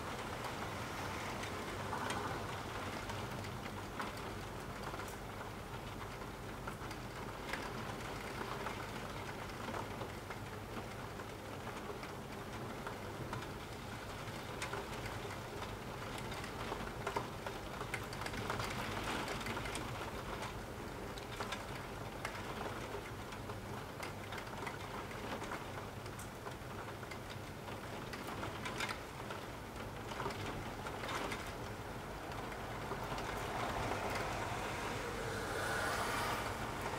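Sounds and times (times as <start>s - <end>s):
rain falling: 0.0s - 36.9s
raindrop ticks: 1.4s - 34.6s.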